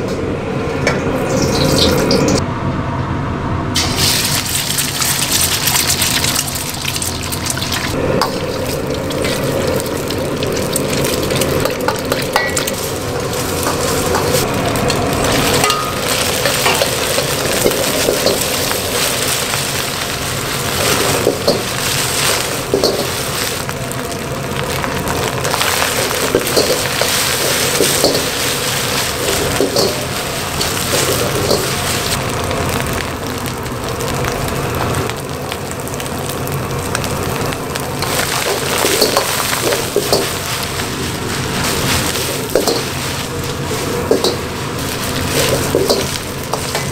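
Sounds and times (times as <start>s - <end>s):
food sizzling in hot oil: 1.2s - 2.4s, 3.8s - 46.9s
metal ladle scraping a wok: 10.8s - 23.6s, 25.5s - 32.2s, 38.0s - 46.9s.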